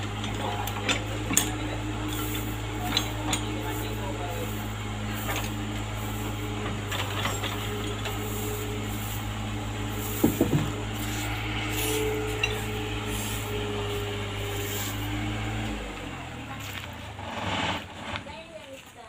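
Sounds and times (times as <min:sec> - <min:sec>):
diesel engine droning: 0:00.0 - 0:18.7
sharp knocks: 0:10.2 - 0:10.8.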